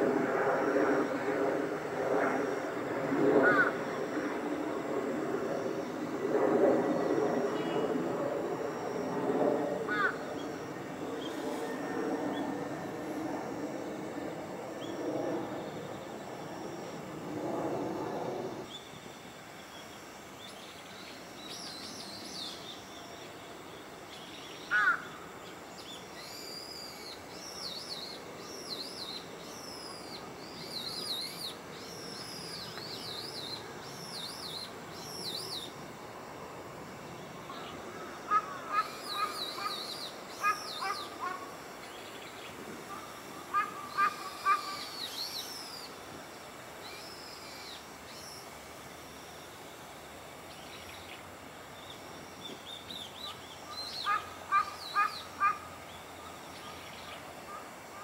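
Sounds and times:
birds chirping: 37.5 - 46.0, 51.8 - 57.6
sharp bird calls: 37.6 - 41.5, 42.9 - 45.9, 53.2 - 57.6.

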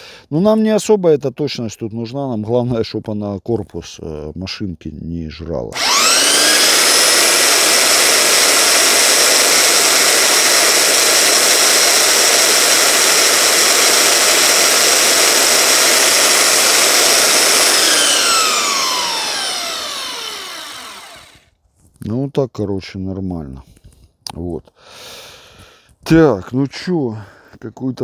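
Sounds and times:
belt sander whining: 5.7 - 21.5.

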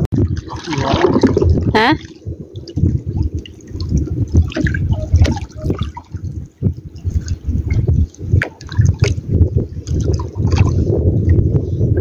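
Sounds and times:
water lapping against boat hull: 0.0 - 12.0.

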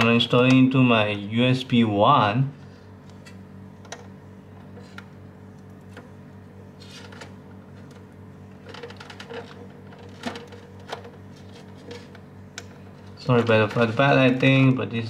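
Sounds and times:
steady low hum: 0.0 - 15.0
clicks and rustles of plastic cables: 6.8 - 14.7.

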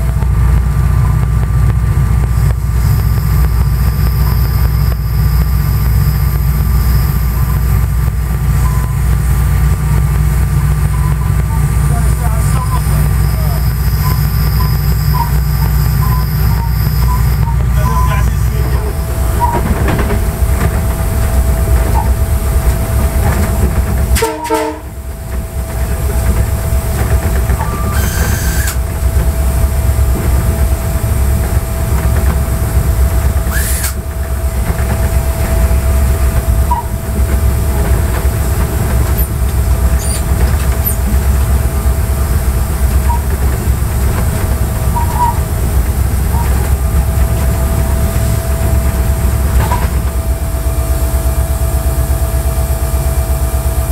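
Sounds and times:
locomotive engine rumble: 0.0 - 53.9
thin whine: 2.2 - 50.2.

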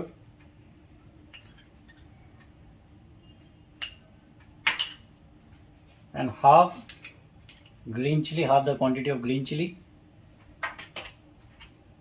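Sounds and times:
spoon clinking glass bowls: 1.3 - 2.1.

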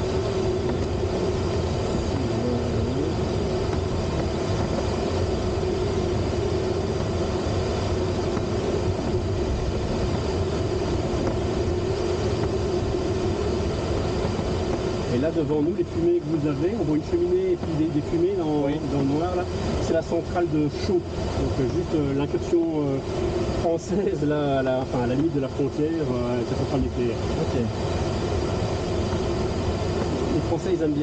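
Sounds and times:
airflow rushing around cockpit: 0.0 - 31.0.

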